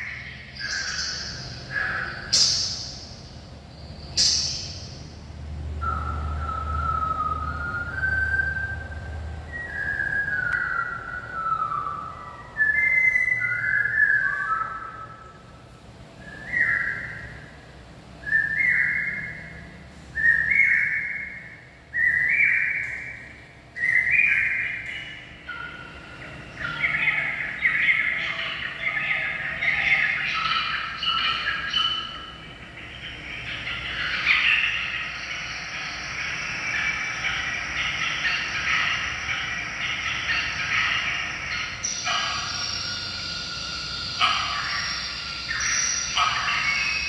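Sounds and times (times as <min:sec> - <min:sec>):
jumble of whistled bird calls: 0:00.0 - 0:47.0
falling whistled bird phrases: 0:05.8 - 0:15.4, 0:16.2 - 0:17.6, 0:18.2 - 0:32.3.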